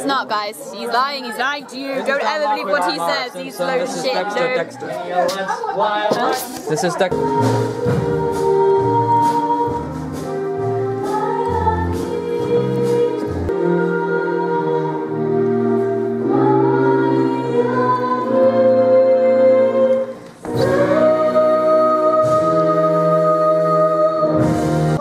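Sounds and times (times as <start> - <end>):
choir singing held notes: 6.2 - 25.0.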